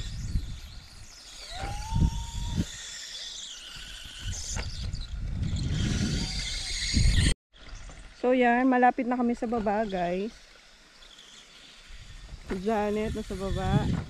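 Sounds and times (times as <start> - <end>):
wind buffeting microphone: 0.0 - 2.8, 4.0 - 7.4, 11.9 - 14.0
high squeal: 0.0 - 7.8.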